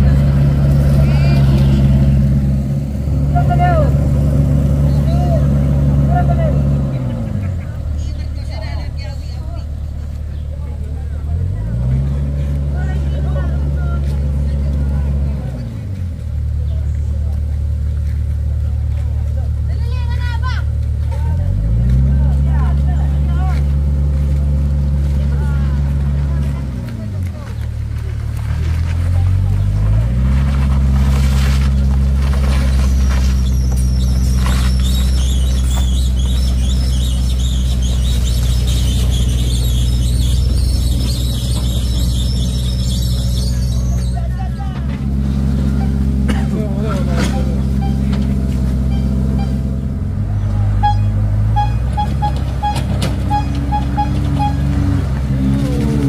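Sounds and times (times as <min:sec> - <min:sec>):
diesel engine idling: 0:00.0 - 0:56.0
tyres crunching on dirt road: 0:00.0 - 0:56.0
wavering high squeals: 0:32.5 - 0:44.4, 0:50.8 - 0:55.0
high electronic beeps: 0:47.3 - 0:48.2, 0:50.8 - 0:54.8.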